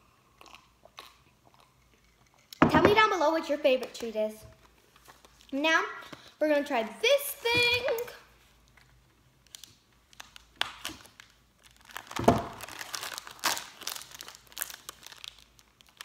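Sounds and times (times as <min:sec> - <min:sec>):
plastic wrapper crinkling: 0:04.6 - 0:05.6, 0:08.6 - 0:16.0.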